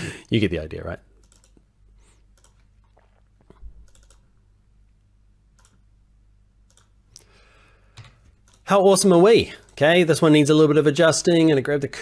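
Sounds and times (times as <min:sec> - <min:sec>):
low steady hum: 0:00.0 - 0:12.0
computer mouse clicks: 0:01.2 - 0:01.6, 0:02.3 - 0:04.3, 0:05.5 - 0:05.8, 0:06.6 - 0:07.3, 0:08.0 - 0:08.7.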